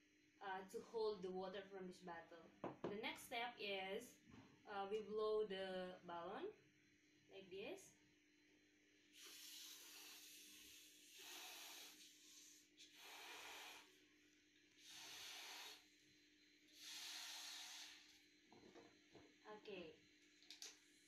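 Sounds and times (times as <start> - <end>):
person blowing up a balloon: 9.2 - 14.0, 14.8 - 15.9, 16.7 - 18.2.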